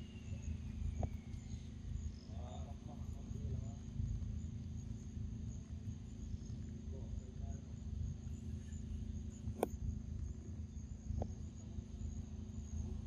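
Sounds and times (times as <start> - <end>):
insects trilling: 0.0 - 13.0
sharp click: 9.6 - 9.8.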